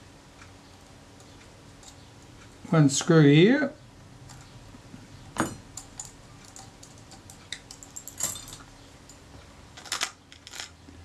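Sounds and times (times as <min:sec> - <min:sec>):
small metal tools clicking on metal: 0:05.4 - 0:09.2, 0:09.8 - 0:10.8.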